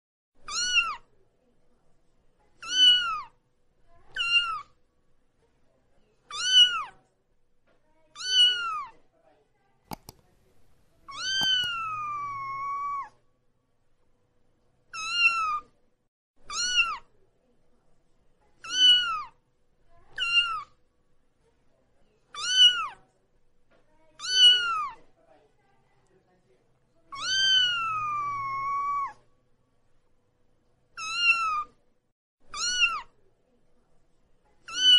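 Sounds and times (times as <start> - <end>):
kitten meowing: 11.1 - 13.1, 27.2 - 29.2.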